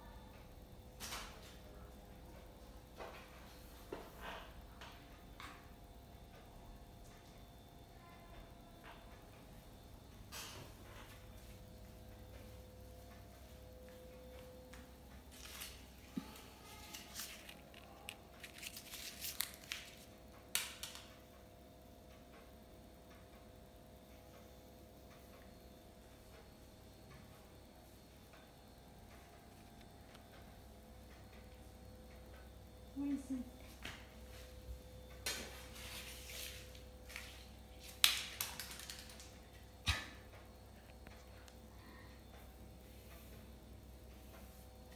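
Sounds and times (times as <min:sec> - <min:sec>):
paper ball crinkling: 0:15.3 - 0:20.1, 0:36.4 - 0:39.3.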